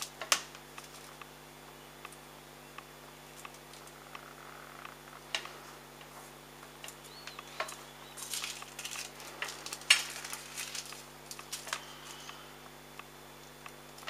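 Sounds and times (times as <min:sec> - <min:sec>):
foil crinkling and rustling: 0:06.8 - 0:12.5.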